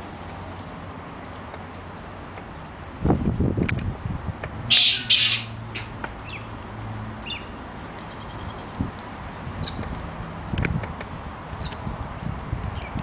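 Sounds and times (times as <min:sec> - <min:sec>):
birds screeching: 0:04.7 - 0:06.6, 0:07.2 - 0:08.8.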